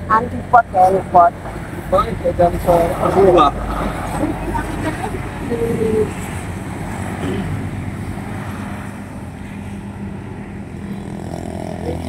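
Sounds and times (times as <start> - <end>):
vehicle engines passing: 0.0 - 12.0.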